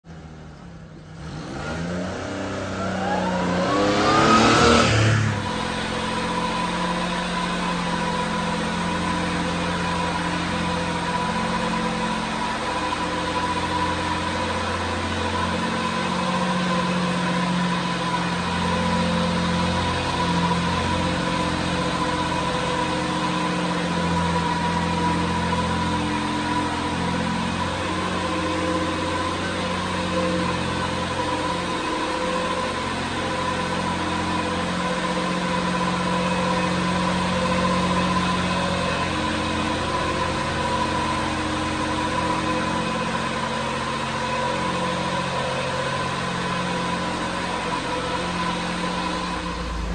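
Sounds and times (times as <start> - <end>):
small engine revving and idling: 0.0 - 49.9.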